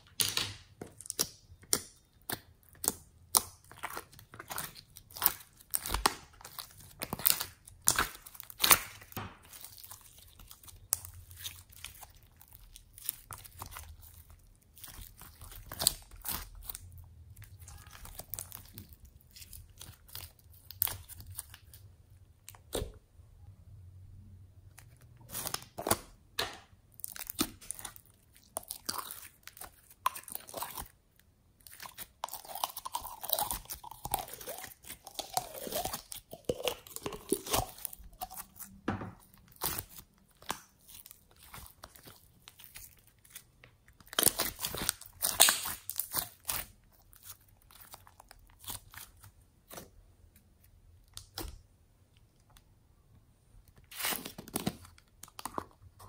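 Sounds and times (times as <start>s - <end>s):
slime squishing: 0.0s - 23.2s, 24.5s - 51.7s
slime popping and clicking: 44.2s - 46.2s.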